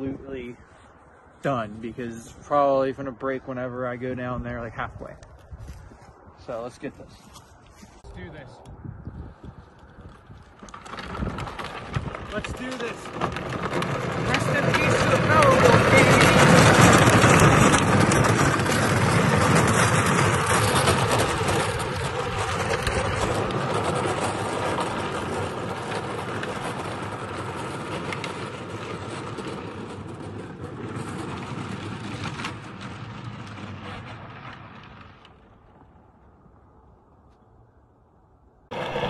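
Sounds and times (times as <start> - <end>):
toy car wheels rattling: 10.0 - 34.2.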